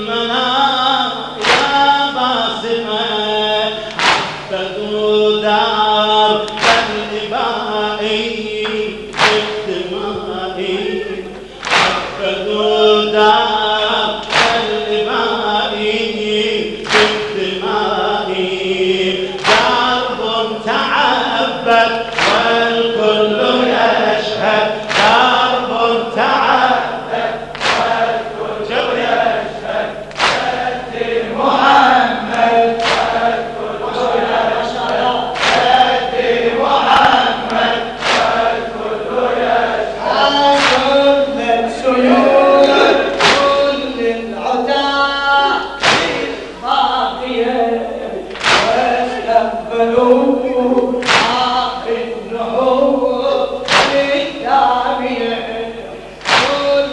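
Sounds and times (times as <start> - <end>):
crowd chanting along: 0.0 - 56.9
men chanting through a microphone: 0.0 - 56.9
crowd striking chests: 3.9 - 4.5, 9.2 - 9.7, 11.6 - 12.2, 27.5 - 28.2, 30.1 - 30.6, 32.8 - 33.4, 35.4 - 36.0, 36.9 - 38.6, 42.0 - 43.8, 45.6 - 46.6.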